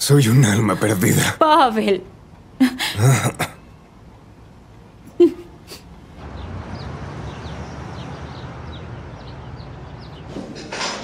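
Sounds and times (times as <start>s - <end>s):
low background noise: 0.0s - 11.0s
small birds chirping: 5.7s - 10.8s.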